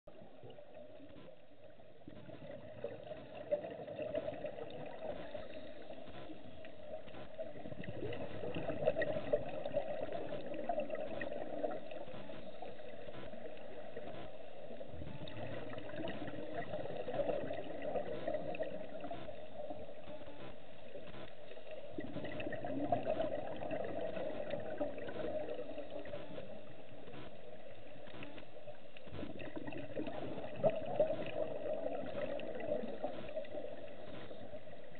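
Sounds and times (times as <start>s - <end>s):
underwater regulator bubbles gurgling: 0.1s - 34.9s
clicks: 4.1s - 14.4s, 15.0s - 23.4s, 24.0s - 31.5s.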